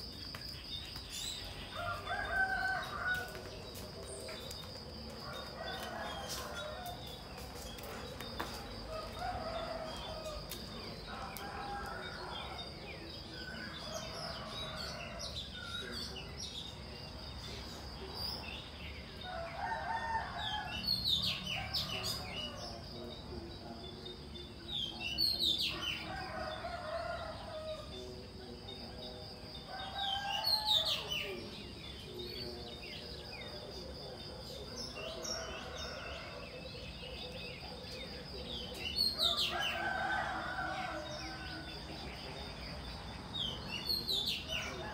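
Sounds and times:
small birds chirping: 0.0 - 19.6
roosters crowing: 1.5 - 3.6, 5.1 - 7.6, 8.7 - 12.9, 19.2 - 22.8, 25.6 - 28.0, 29.6 - 31.2, 38.9 - 42.3.

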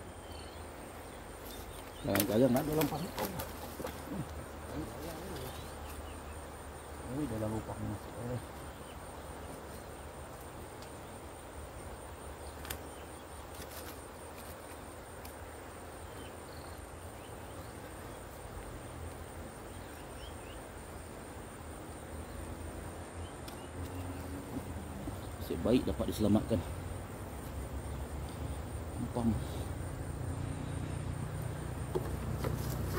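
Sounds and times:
high insect trill: 0.0 - 32.9
faint clicks: 10.3 - 11.0, 12.6 - 15.4, 23.4 - 24.2.

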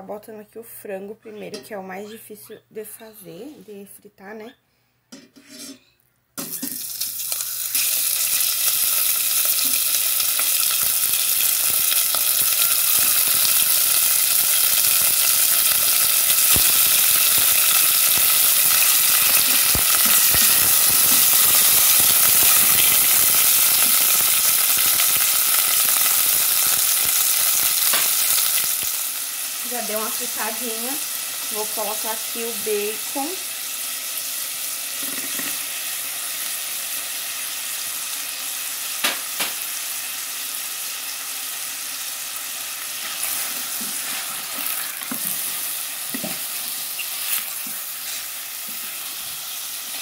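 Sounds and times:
chicken sizzling in hot oil: 6.4 - 50.0.

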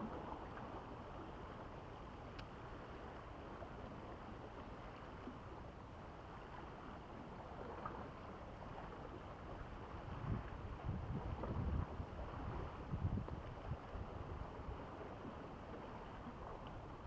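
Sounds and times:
wind on microphone: 9.5 - 17.0.

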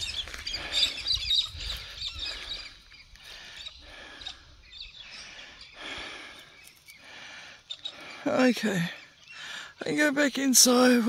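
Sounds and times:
wind rumbling on microphone: 0.0 - 3.0
birds chirping and calling: 0.0 - 11.0.

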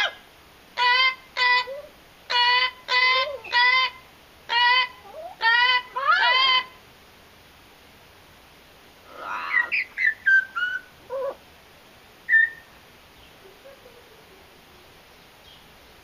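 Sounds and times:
parrot whistling: 9.2 - 11.4, 12.3 - 12.7.

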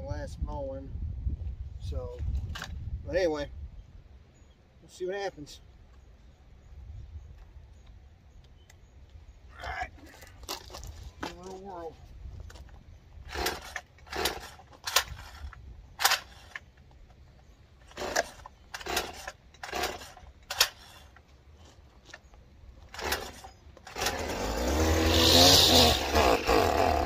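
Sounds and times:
recoil starter cord yanks: 12.4 - 17.0, 17.8 - 27.0
string trimmer engine running: 13.2 - 15.5, 17.8 - 21.2, 22.9 - 27.0.

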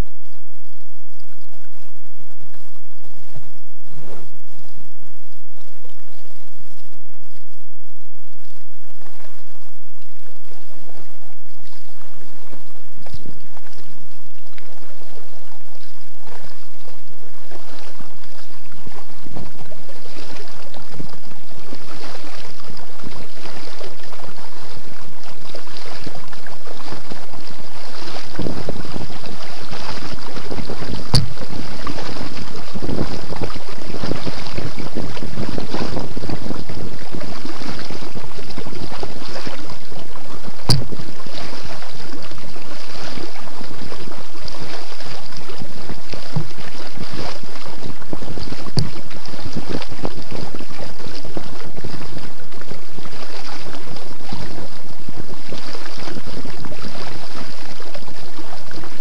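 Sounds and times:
water sloshing around kayak: 0.0 - 59.0
wind buffeting microphone: 0.0 - 59.0
sharp knocks: 40.7 - 41.0.

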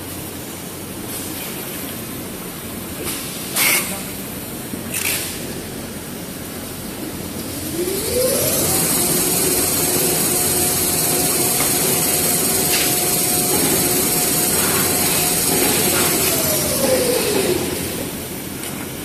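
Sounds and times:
machine rumble: 7.4 - 19.0
paper machine whining: 7.6 - 18.4.

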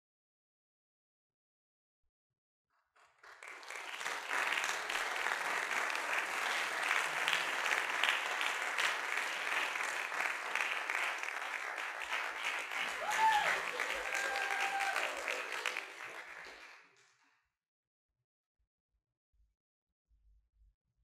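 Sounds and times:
audience applauding: 3.0 - 17.0.

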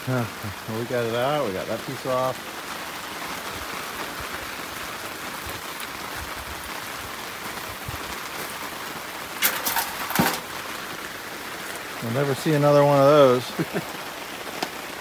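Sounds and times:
steady rain falling: 0.0 - 15.0
clatter of sharp knocks: 9.4 - 10.5.

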